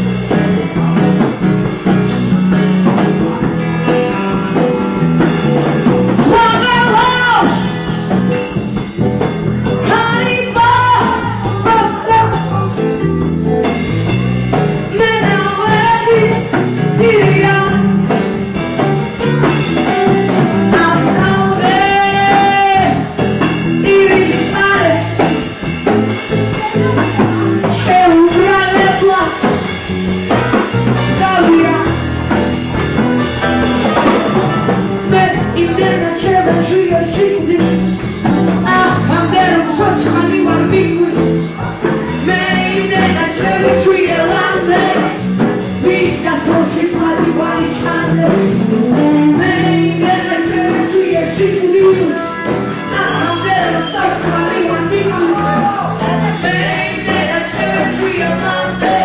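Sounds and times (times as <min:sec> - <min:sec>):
band with guitar: 0:00.0 - 0:59.0
woman singing: 0:06.2 - 0:08.0, 0:09.8 - 0:12.6, 0:14.9 - 0:17.9, 0:20.7 - 0:23.1, 0:23.8 - 0:25.3, 0:26.5 - 0:29.6, 0:31.1 - 0:32.0, 0:35.0 - 0:38.0, 0:38.6 - 0:59.0.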